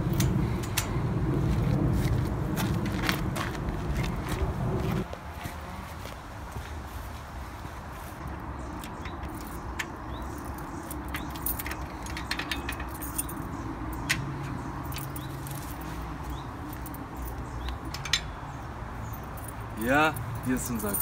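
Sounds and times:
steady low rumble: 0:00.0 - 0:05.1
footsteps: 0:01.4 - 0:08.3
sharp clicks and knocks: 0:08.8 - 0:15.6, 0:17.6 - 0:18.4.

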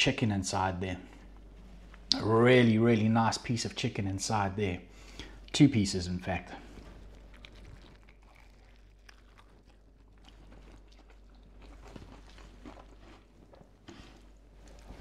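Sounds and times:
crunchy chewing: 0:06.6 - 0:15.0.

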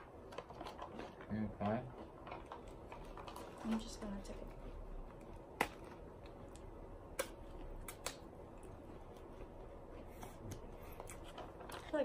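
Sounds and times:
sharp plastic crackles: 0:00.0 - 0:04.4, 0:05.2 - 0:08.3.

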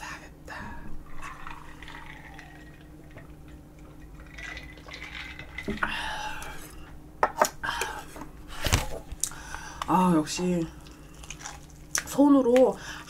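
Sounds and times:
person drinking and swallowing: 0:00.9 - 0:08.0
glass jar set down: 0:04.5 - 0:05.9.

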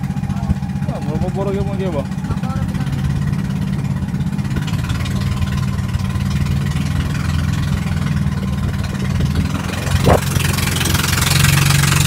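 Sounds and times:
boat engine humming: 0:00.0 - 0:12.0
wind and water rushing: 0:03.0 - 0:12.0.

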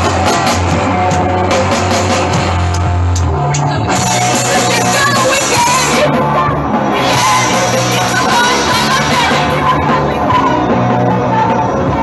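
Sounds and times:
live amplified band: 0:00.0 - 0:12.0
women singing: 0:04.5 - 0:12.0.

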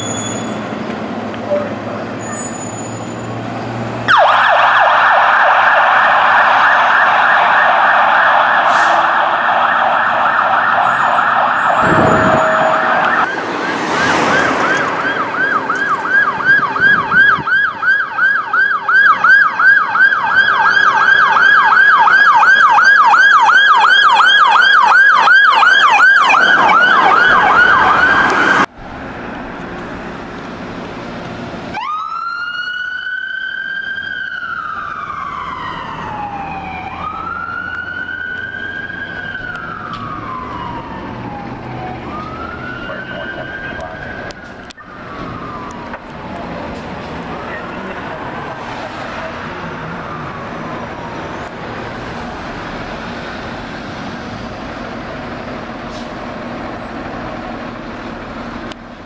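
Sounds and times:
siren rising wail: 0:04.0 - 0:28.7, 0:31.7 - 0:55.6
siren yelping: 0:04.1 - 0:28.7, 0:31.7 - 0:46.7.

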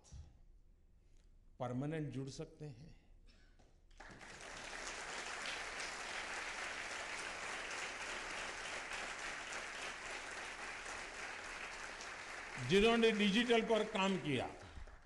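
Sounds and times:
audience applauding: 0:04.0 - 0:15.0.

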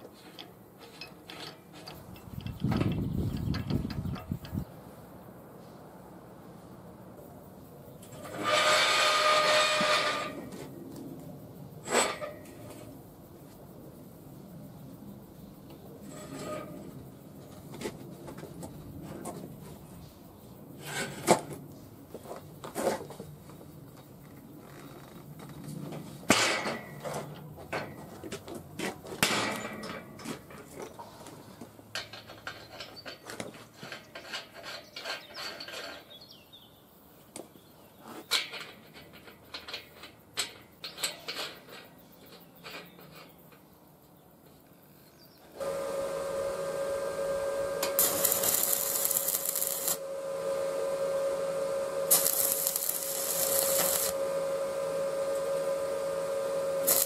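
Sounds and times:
steel clanks and scraping: 0:00.0 - 0:04.7, 0:08.0 - 0:10.7, 0:11.8 - 0:12.9, 0:16.0 - 0:17.0, 0:20.8 - 0:21.6, 0:26.0 - 0:36.3, 0:38.1 - 0:43.6
electrical hum: 0:45.6 - 0:57.0
welding arc crackling: 0:45.6 - 0:57.0.

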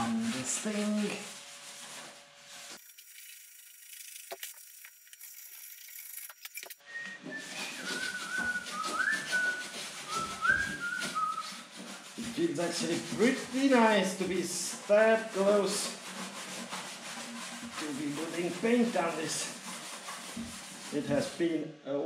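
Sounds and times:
man whistling a tune: 0:06.8 - 0:11.5.

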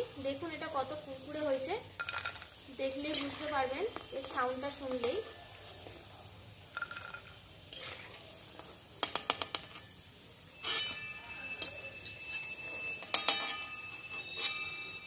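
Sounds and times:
hot oil sizzling: 0:00.0 - 0:15.0
metal spoon clinking on pan: 0:01.8 - 0:05.5, 0:06.7 - 0:15.0.

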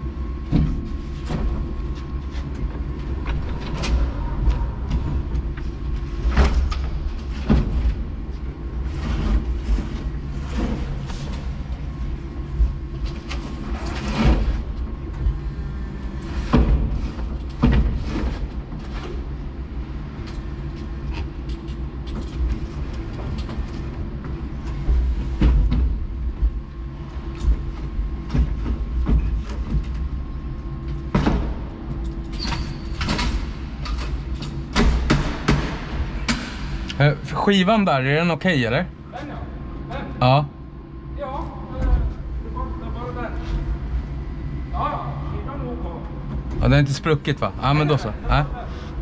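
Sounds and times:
low machine hum: 0:00.0 - 0:49.0.

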